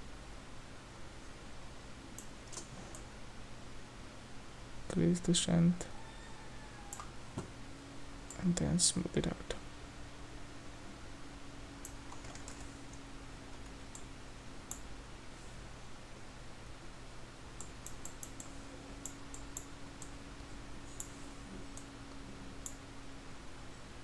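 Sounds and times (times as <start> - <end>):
faint steady hum: 0.0 - 24.0
keyboard and mouse clicks: 2.2 - 3.1, 11.8 - 12.7, 17.6 - 20.2.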